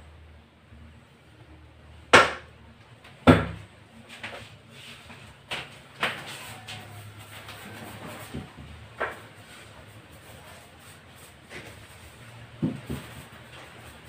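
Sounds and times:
paint roller knocking on wall: 0:12.5 - 0:13.3.

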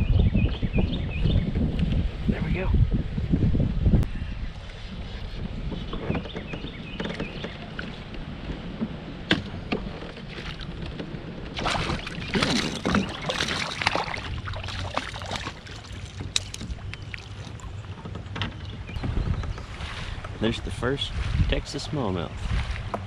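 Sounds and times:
wind rumble on microphone: 0:00.0 - 0:23.0
water splashing and sloshing: 0:04.6 - 0:23.0
knocks against hull: 0:05.4 - 0:20.4.

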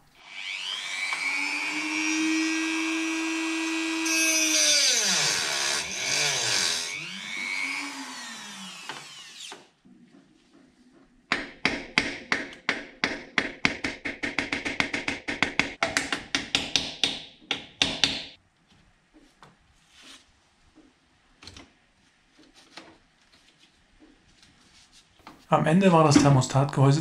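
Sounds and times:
rotary tool whining: 0:00.2 - 0:09.7.

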